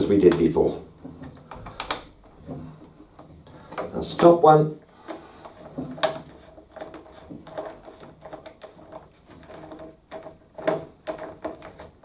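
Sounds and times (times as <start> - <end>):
hands handling plastic housing: 0.0 - 4.4.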